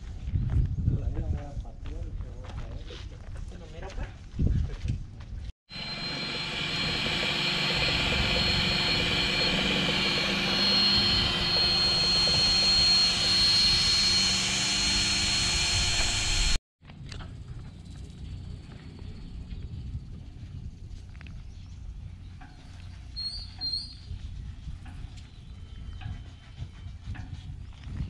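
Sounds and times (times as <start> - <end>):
high-pitched whine: 5.7 - 16.6
loud machine drone: 5.7 - 16.6.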